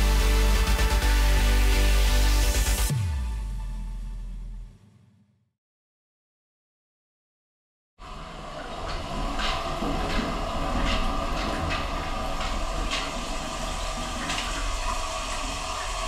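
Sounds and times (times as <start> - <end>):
shower water spraying on tiles: 8.8 - 16.0.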